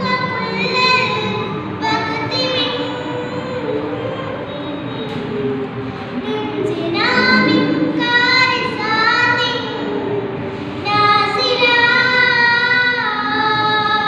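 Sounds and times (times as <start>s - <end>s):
girl chanting solo: 6.8s - 9.5s.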